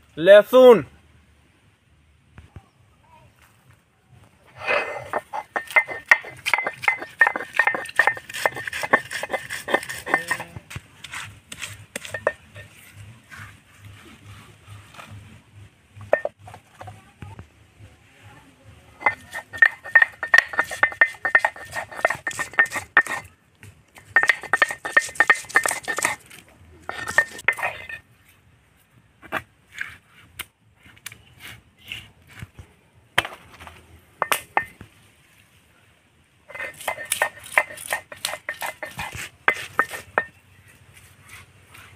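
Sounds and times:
stone roller grinding on stone slab: 4.5s - 13.1s, 16.0s - 16.5s, 19.0s - 23.3s, 24.0s - 28.0s, 33.2s - 34.8s, 36.5s - 40.4s.

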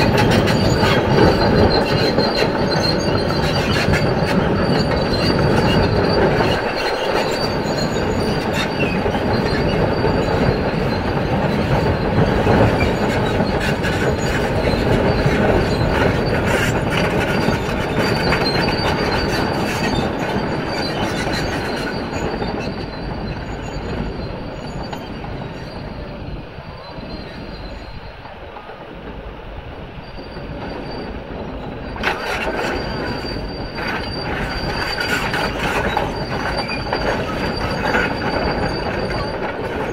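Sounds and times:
excavator tracks squealing and clanking: 0.0s - 39.9s.

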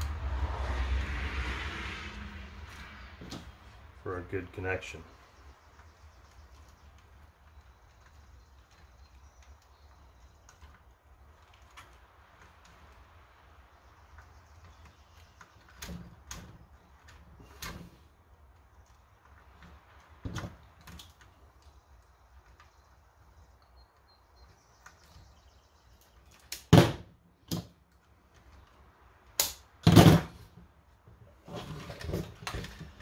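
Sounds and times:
small clicks and knocks of parts: 5.6s - 26.7s, 27.4s - 29.8s.

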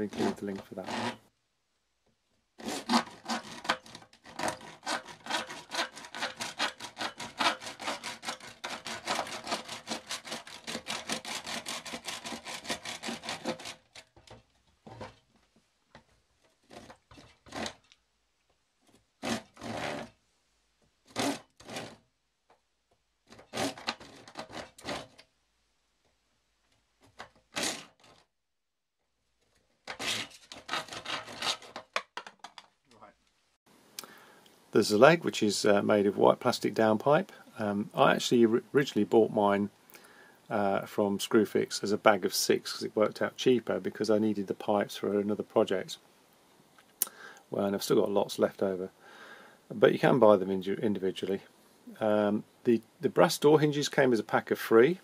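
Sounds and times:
hand saw cutting plastic pipe: 0.0s - 1.2s, 2.6s - 14.4s, 16.7s - 17.8s, 19.2s - 20.2s, 21.1s - 22.0s, 23.3s - 25.2s, 27.1s - 28.2s, 29.8s - 32.4s.

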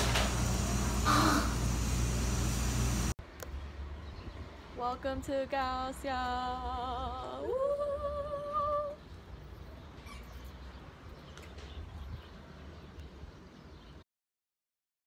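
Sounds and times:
woman singing with vibrato: 4.8s - 9.0s.

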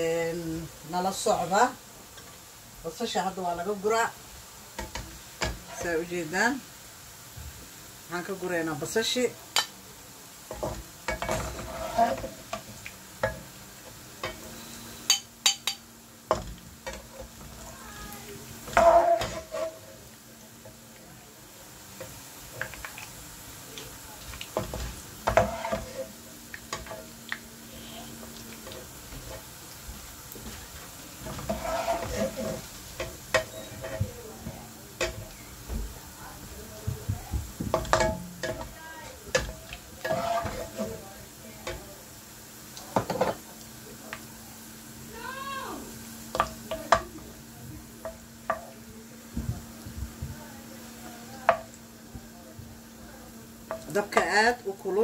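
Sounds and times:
oil sizzling: 0.0s - 55.0s
metal spatula scraping wok: 4.8s - 6.1s, 10.5s - 13.5s, 14.2s - 17.8s, 18.6s - 20.8s, 24.5s - 27.2s, 30.4s - 35.5s, 37.7s - 41.0s.

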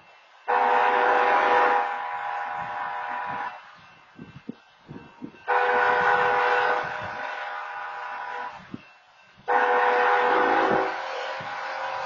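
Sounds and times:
railroad crossing horn blasts: 0.5s - 3.8s, 5.2s - 8.8s, 9.4s - 12.0s.

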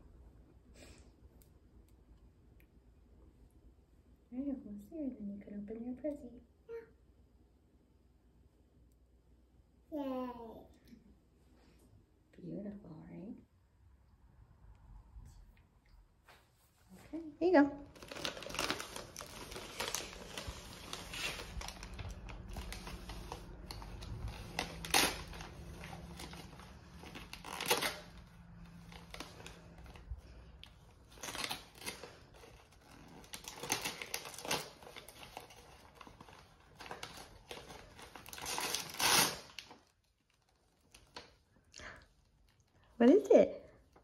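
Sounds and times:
wrapping paper crinkling and tearing: 17.8s - 41.4s.

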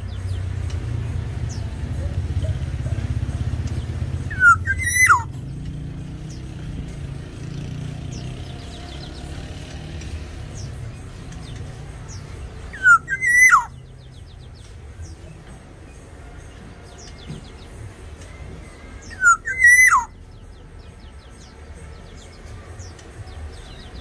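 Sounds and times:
oriole fluty whistled calls: 2.3s - 5.4s, 12.7s - 14.3s, 19.0s - 20.2s.

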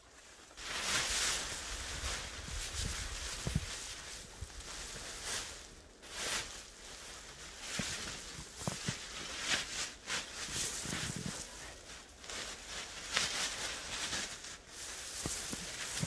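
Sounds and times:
plastic sheeting rustling: 0.0s - 16.0s.

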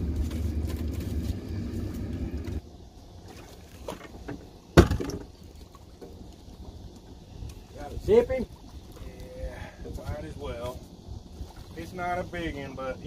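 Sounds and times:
low rumble: 0.0s - 3.2s.

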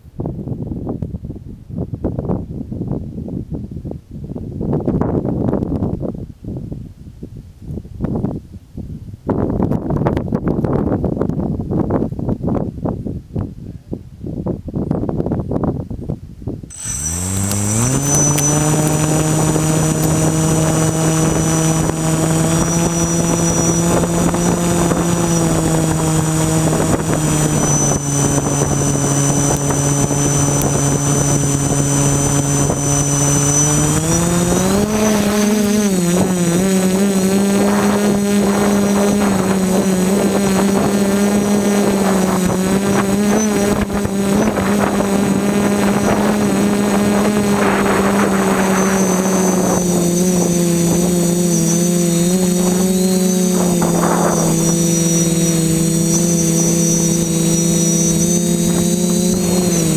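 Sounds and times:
drone motors humming: 16.7s - 59.9s.

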